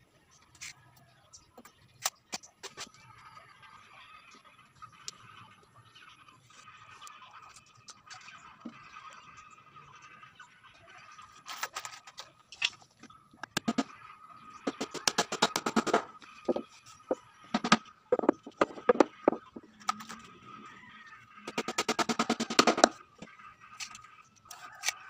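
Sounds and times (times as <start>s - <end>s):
hammer tapping nails into wood: 17.6s - 19.4s.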